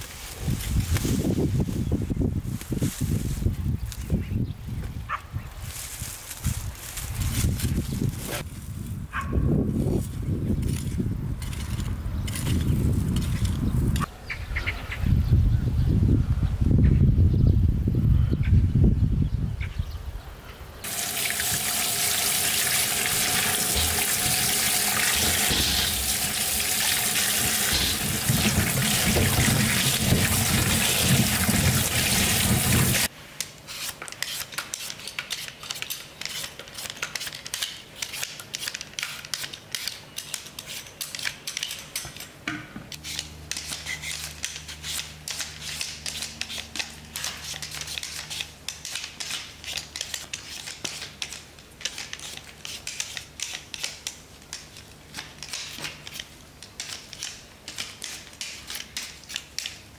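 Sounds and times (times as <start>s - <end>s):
peeler scraping potatoes: 20.8s - 33.1s, 33.7s - 41.9s, 42.9s - 59.8s
tap water running: 20.8s - 33.1s
potatoes rubbed in steel bowl: 20.9s - 33.1s.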